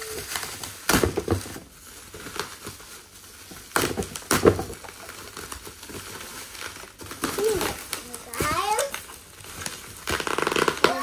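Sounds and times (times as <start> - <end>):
loud plastic rips: 0.0 - 11.0
plastic wrapping tearing and crinkling: 0.0 - 11.0.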